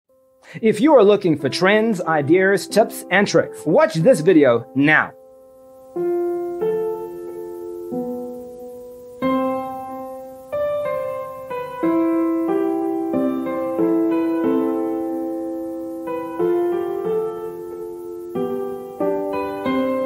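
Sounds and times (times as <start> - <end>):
gentle piano music: 0.1 - 20.0.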